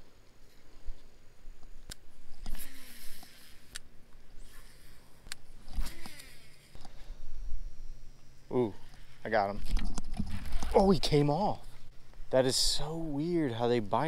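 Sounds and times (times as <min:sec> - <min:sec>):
fishing reel clicks: 0:01.9 - 0:06.7.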